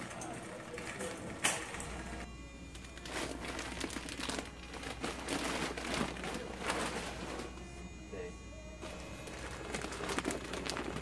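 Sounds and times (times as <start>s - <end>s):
plastic bags crinkling: 2.9s - 7.5s, 8.8s - 11.0s.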